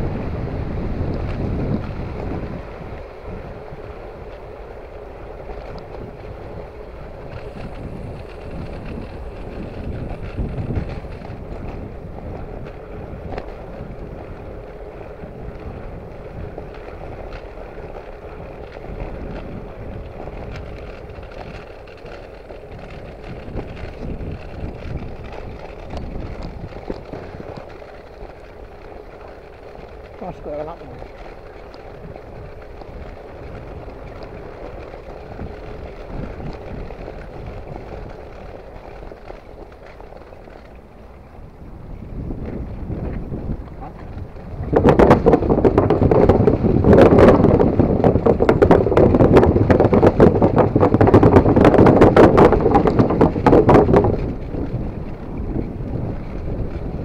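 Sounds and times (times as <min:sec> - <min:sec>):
tyre and road noise: 0:00.0 - 0:57.0
wind buffeting microphone: 0:00.0 - 0:57.0.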